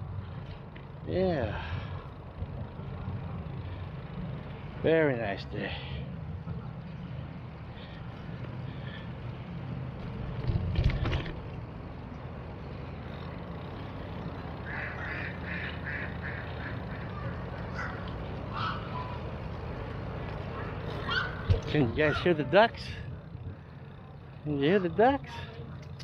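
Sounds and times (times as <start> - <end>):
ducks quacking: 14.6 - 19.2.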